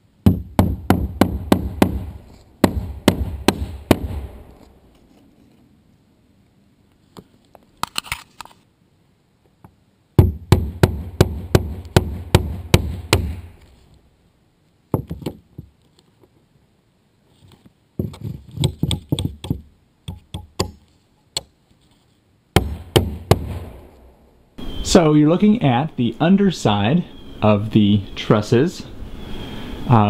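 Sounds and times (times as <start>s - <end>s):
hammer blows on roof: 0.2s - 4.5s, 10.2s - 13.5s, 22.6s - 23.8s.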